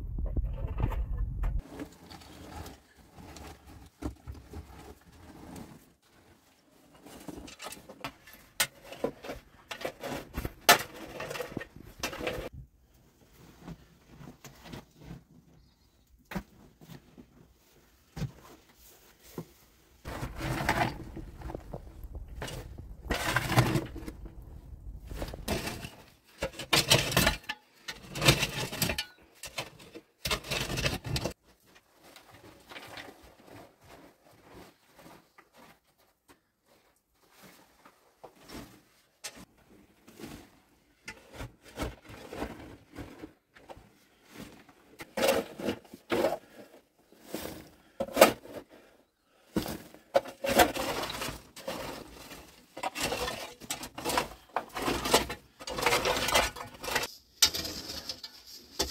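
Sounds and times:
rocks knocking and scraping: 0.0s - 5.6s, 19.4s - 29.1s
digging tool scraping rubble: 6.8s - 12.5s, 20.0s - 31.4s, 44.1s - 58.9s.

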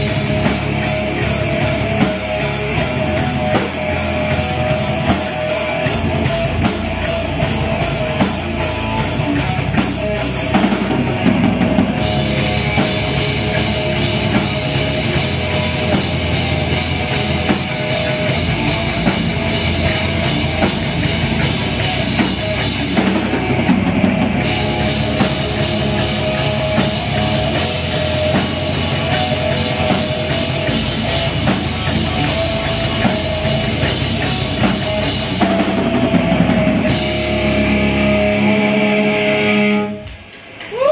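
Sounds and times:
distorted electric guitar: 0.0s - 40.7s
driving drum kit: 0.0s - 40.8s
bass guitar: 0.0s - 40.9s.

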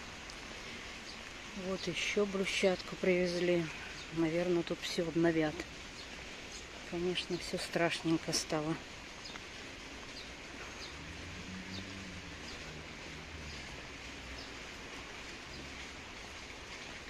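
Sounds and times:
rain on pavement: 0.0s - 17.0s
faint low hum: 10.4s - 16.5s.

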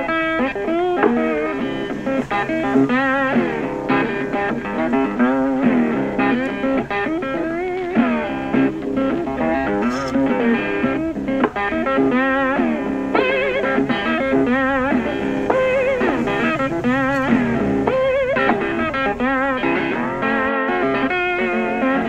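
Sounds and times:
guitar melody: 0.0s - 22.0s.

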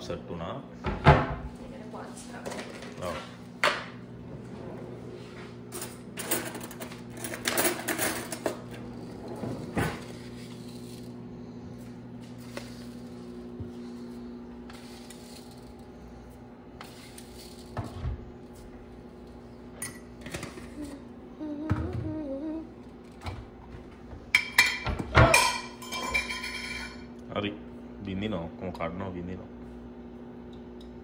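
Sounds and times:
low appliance hum: 0.0s - 31.0s
cutlery rattling in drawer: 5.7s - 8.7s.

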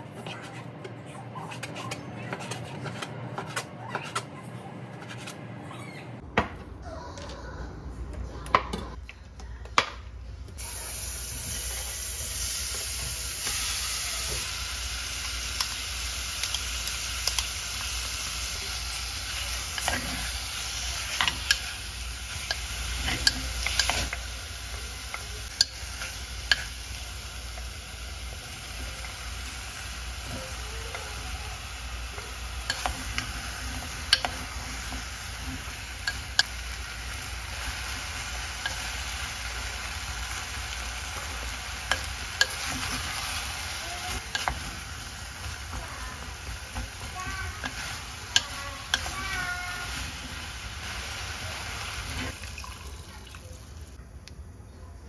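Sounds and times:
food sizzling in a frying pan: 10.6s - 54.0s.

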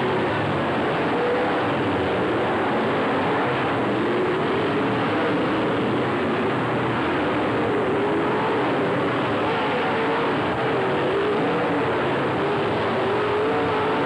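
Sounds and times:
race car engines droning: 0.0s - 14.0s.

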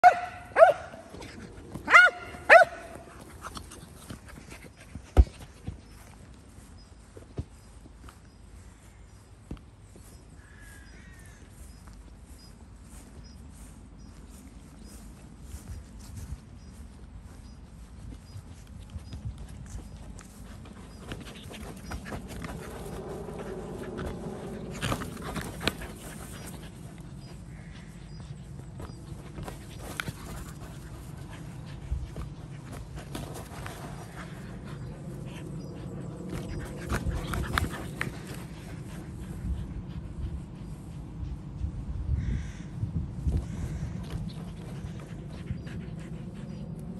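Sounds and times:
dog barking: 0.0s - 1.0s, 1.9s - 2.9s
dog panting: 19.4s - 41.8s, 44.0s - 46.9s.

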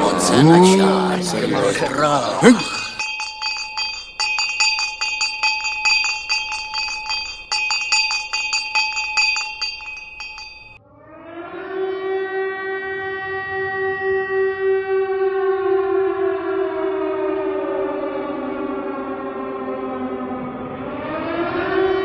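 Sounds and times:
siren: 0.0s - 3.0s, 10.8s - 22.0s
hand bell ringing: 2.5s - 10.8s.

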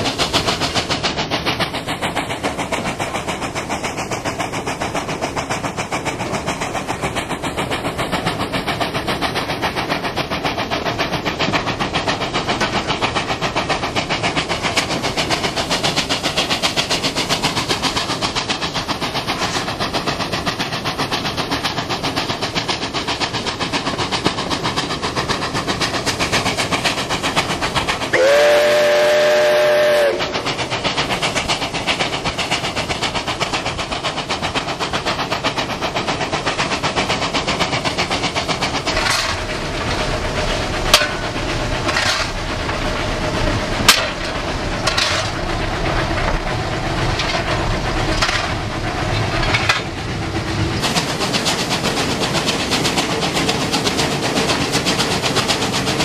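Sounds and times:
steam locomotive exhaust beating: 0.0s - 56.0s
train running noise: 0.0s - 56.0s
steam whistle: 28.1s - 30.5s.

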